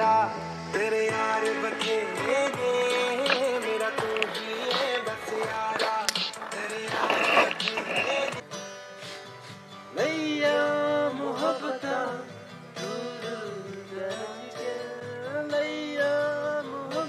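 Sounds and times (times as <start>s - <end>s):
acoustic guitar strummed: 0.0s - 17.0s.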